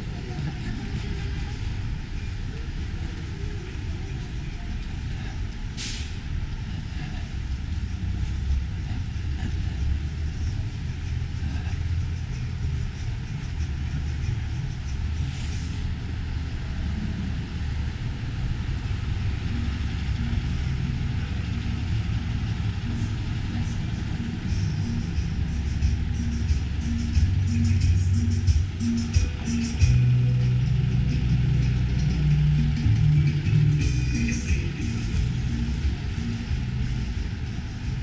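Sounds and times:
street traffic rumbling: 0:00.0 - 0:38.0
air-brake hisses: 0:05.8 - 0:06.3, 0:15.2 - 0:15.9.

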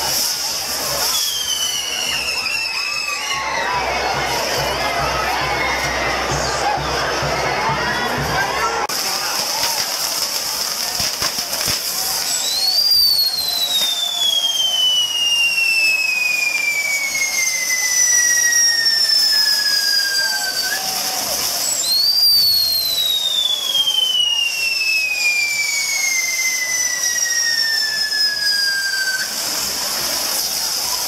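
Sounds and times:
sparking fireworks hiss: 0:00.0 - 0:31.0
whistling fireworks: 0:00.0 - 0:31.0.

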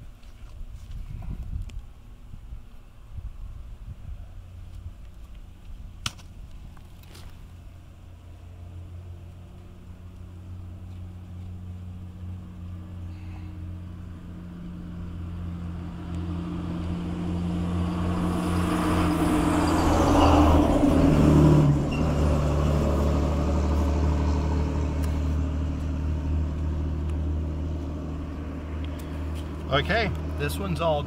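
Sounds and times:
passing vehicle engine: 0:07.6 - 0:31.0.

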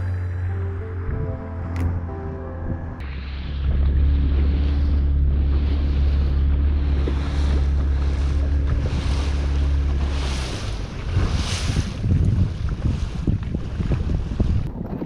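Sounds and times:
boat motor humming: 0:00.0 - 0:14.8
water rushing past hull: 0:00.0 - 0:15.0
wind buffeting microphone: 0:00.0 - 0:15.0.

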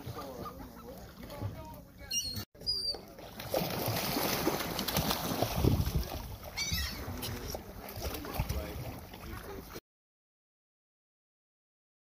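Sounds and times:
birds splashing and flapping wings: 0:00.0 - 0:09.8
wind buffeting microphone: 0:05.3 - 0:07.3.

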